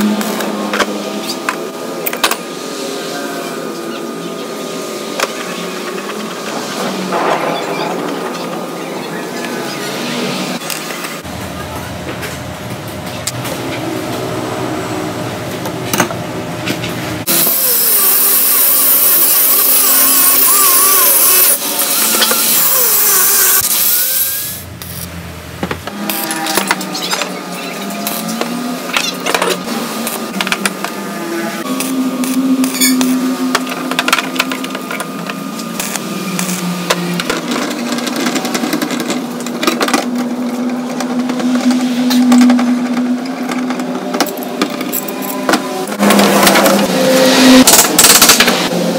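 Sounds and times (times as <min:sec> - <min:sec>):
steady machine hum: 0:00.0 - 0:48.9
angle grinder cutting steel: 0:17.3 - 0:25.1, 0:25.9 - 0:48.9.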